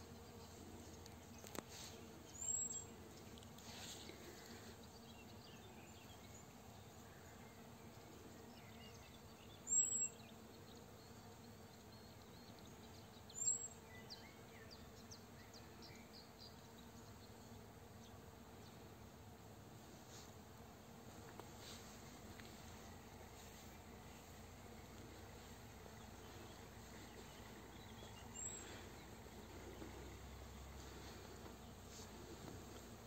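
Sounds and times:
bees buzzing: 17.3s - 33.0s.

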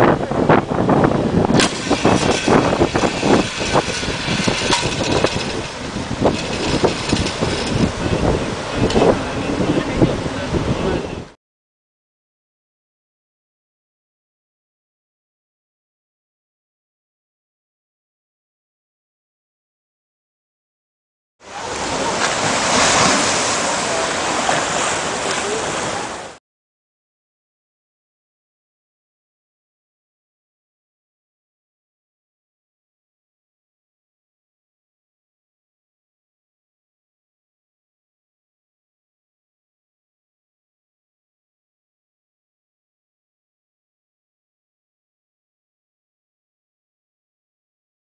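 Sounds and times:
wind buffeting microphone: 0.0s - 11.4s
sea water rushing: 0.3s - 11.3s, 21.4s - 26.4s
faint voices: 21.4s - 26.4s.

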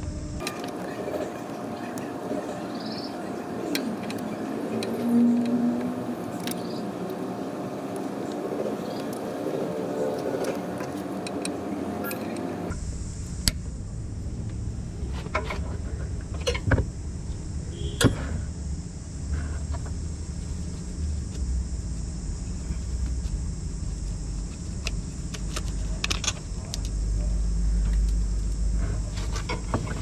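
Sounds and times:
steady low rumble: 0.0s - 0.4s, 12.6s - 30.0s.

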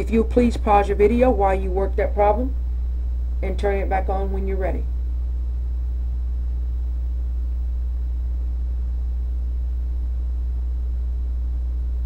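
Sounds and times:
low-pitched hum with higher tone: 0.0s - 12.0s.

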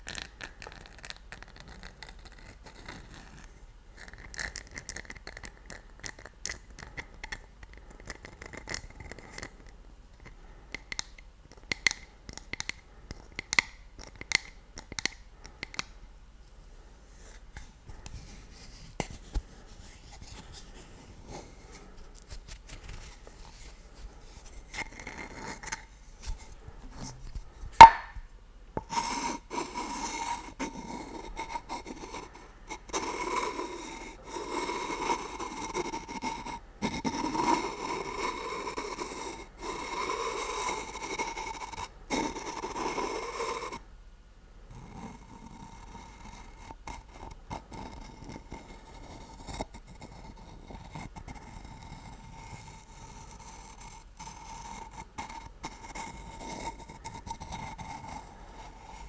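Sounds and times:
fingers tapping on ceramic mug: 10.8s - 12.8s
wooden stick scraping jar: 17.2s - 28.2s, 28.8s - 43.8s, 45.7s - 59.0s
sharp knock: 27.8s - 28.2s.

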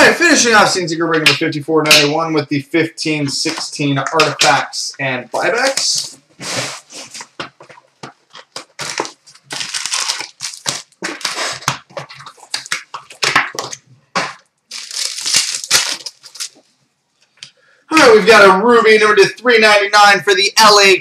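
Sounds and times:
wrappers crinkling and tearing: 8.4s - 13.8s, 14.7s - 16.7s.

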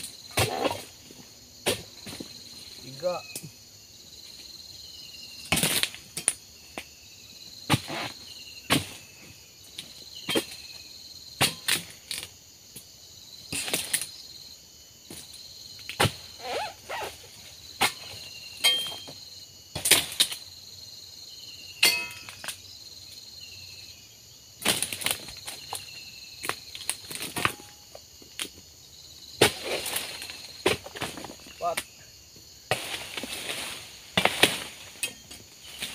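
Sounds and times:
insects droning: 0.0s - 35.9s
blade chopping fronds: 32.7s - 35.9s
rustling fronds: 32.7s - 35.9s.

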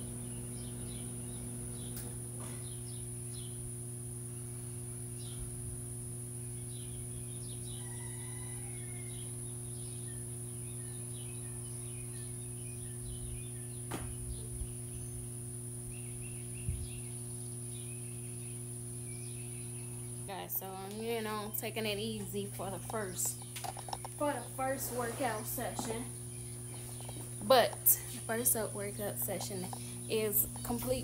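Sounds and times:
steady low hum: 0.0s - 31.0s
small birds chirping: 9.2s - 21.8s, 22.9s - 31.0s.

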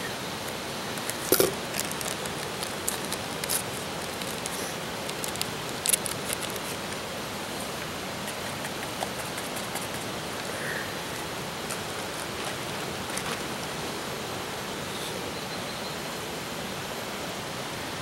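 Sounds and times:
steady hiss: 0.0s - 18.0s
powder tipped into metal mug: 1.0s - 6.8s
paper packet crinkling: 1.0s - 7.0s.

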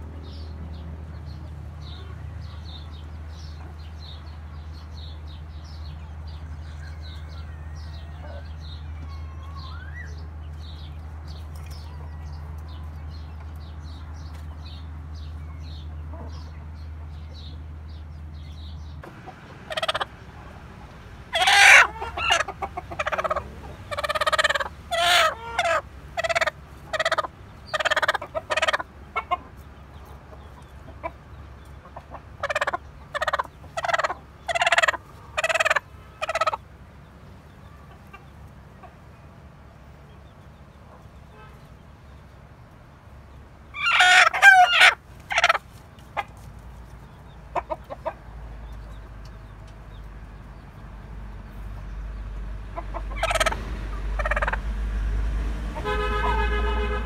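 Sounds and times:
hen clucking: 1.3s - 17.5s, 19.0s - 39.2s, 43.7s - 54.8s
wavering fowl calls: 6.3s - 10.3s, 19.0s - 36.7s, 43.7s - 46.4s, 52.7s - 54.8s, 55.6s - 57.0s.

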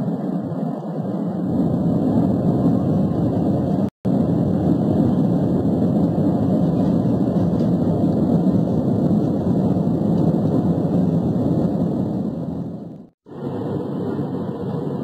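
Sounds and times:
jet airliner cabin noise: 0.0s - 15.0s.

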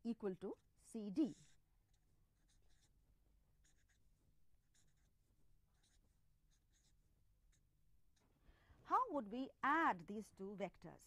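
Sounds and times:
scratchy writing strokes: 1.2s - 8.2s.

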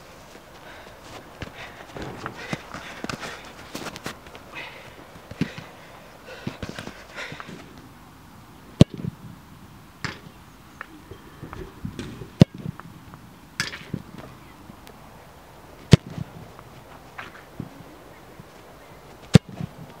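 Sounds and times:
footsteps on artificial turf: 0.0s - 4.5s
football kicked hard: 1.4s - 4.3s
faint knock: 2.0s - 4.0s.

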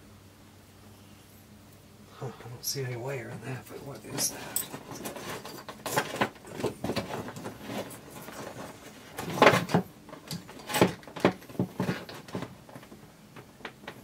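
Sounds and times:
tools clicking and rattling: 4.0s - 12.1s.

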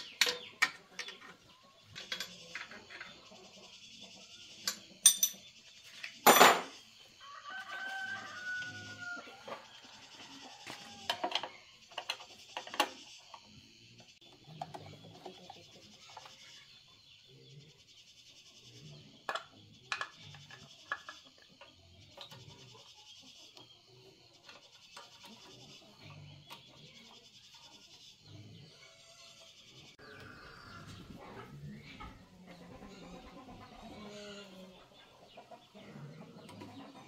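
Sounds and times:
clicks and metal knocks: 0.0s - 3.2s.

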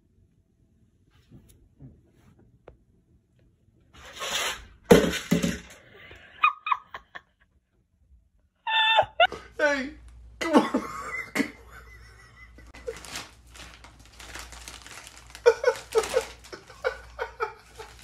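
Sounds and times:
person laughing: 6.0s - 7.4s, 8.7s - 9.6s, 10.4s - 13.3s, 15.3s - 18.0s
plastic bag rustling: 12.7s - 18.0s.

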